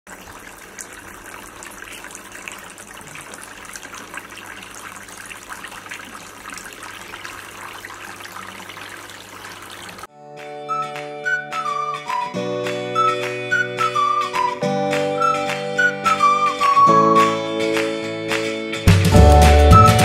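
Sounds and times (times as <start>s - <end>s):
fountain water splashing: 0.1s - 10.1s.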